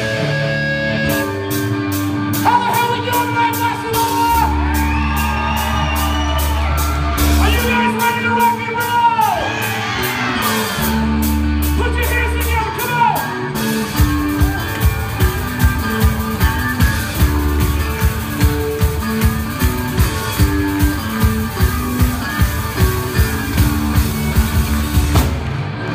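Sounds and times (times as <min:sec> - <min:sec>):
bass guitar: 0:00.0 - 0:25.9
electric guitar: 0:00.0 - 0:25.9
drums and cymbals: 0:01.1 - 0:25.9
singer shouting long notes: 0:02.4 - 0:13.6.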